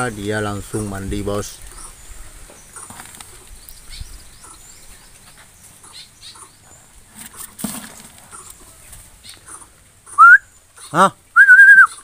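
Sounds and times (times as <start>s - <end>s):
birds chirping: 0.0s - 12.0s
wings fluttering: 2.7s - 4.1s.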